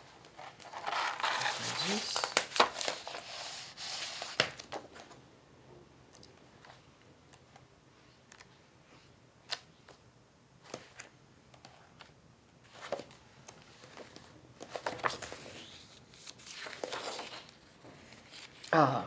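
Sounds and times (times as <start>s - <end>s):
book pages turning: 0.2s - 5.2s, 12.7s - 18.7s.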